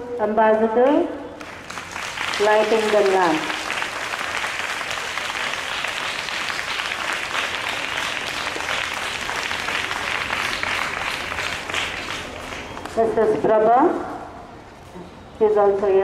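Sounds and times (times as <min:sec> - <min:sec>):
people clapping: 0:01.4 - 0:13.0.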